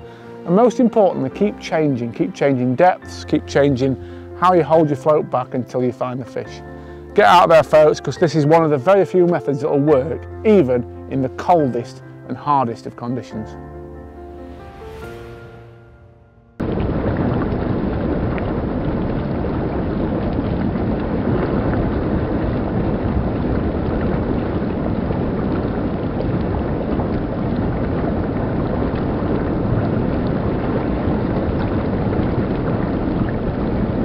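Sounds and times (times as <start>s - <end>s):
water rushing over rocks: 16.6s - 34.0s.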